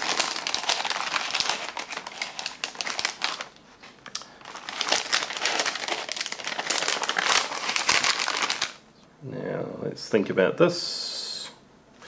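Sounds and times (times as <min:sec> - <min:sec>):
plastic pouches crinkling: 0:00.0 - 0:08.9.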